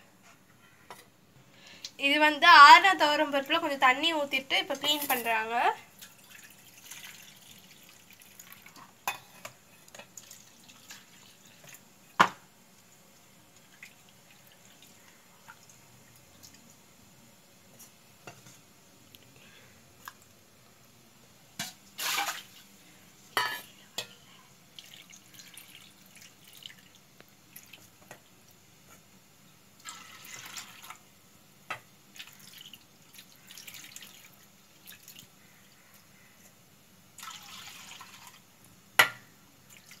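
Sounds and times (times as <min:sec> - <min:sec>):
water sloshing and dripping: 0:06.0 - 0:09.0, 0:09.8 - 0:11.8, 0:13.5 - 0:16.8, 0:21.9 - 0:22.7, 0:24.8 - 0:28.0, 0:29.8 - 0:31.0, 0:32.1 - 0:36.1, 0:37.2 - 0:38.4, 0:39.7 - 0:40.0.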